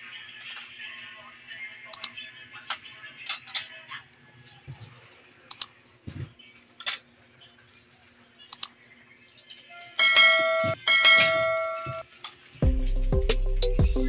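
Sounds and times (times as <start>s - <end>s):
mouse clicks: 1.9s - 2.1s, 5.5s - 5.7s, 8.5s - 8.8s
bell dings: 10.0s - 12.0s.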